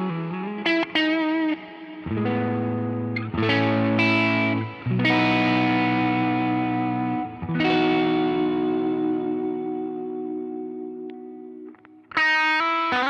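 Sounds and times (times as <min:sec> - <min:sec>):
overdriven electric guitar chords: 0:00.0 - 0:13.0.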